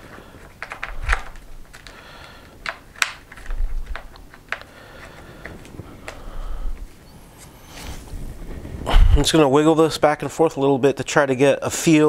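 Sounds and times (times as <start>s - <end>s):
plastic clicks and taps: 0.4s - 6.2s.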